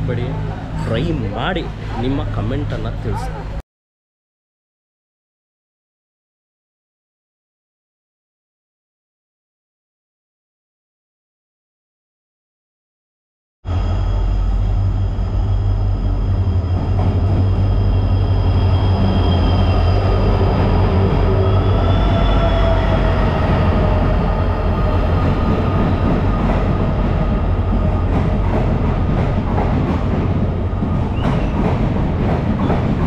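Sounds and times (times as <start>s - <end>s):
locomotive rumble: 13.7s - 33.0s
train wheels clicking over rail joints: 26.0s - 33.0s.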